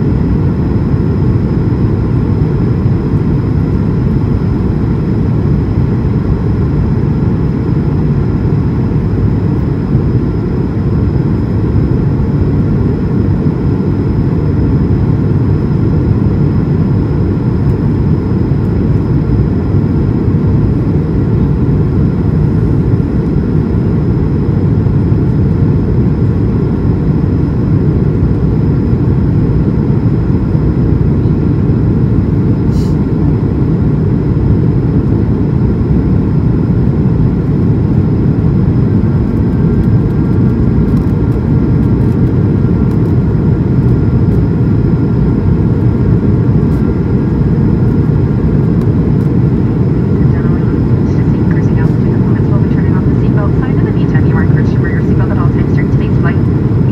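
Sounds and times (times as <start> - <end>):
airplane cabin roar: 0.0 - 56.9.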